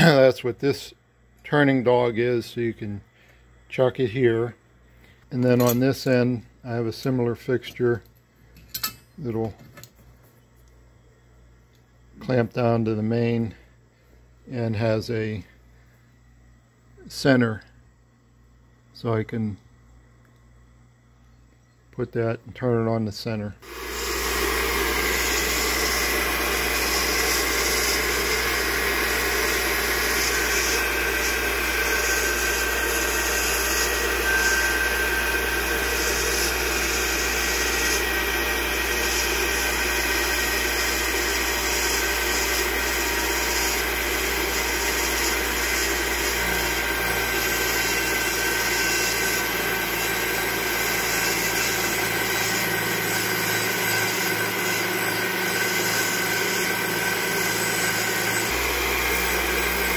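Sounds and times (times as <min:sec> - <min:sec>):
tool post grinder grinding metal: 0:23.6 - 0:59.9.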